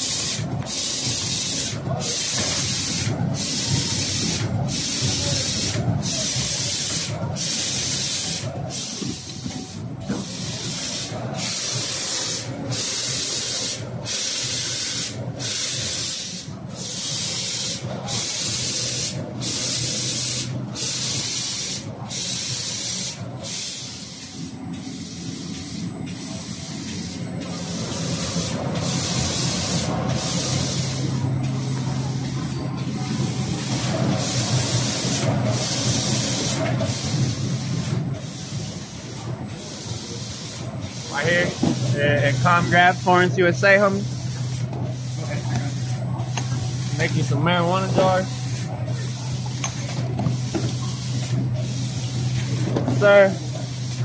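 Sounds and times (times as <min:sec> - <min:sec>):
screen printer hiss: 0:00.0 - 0:54.0
low machine hum: 0:20.4 - 0:39.7.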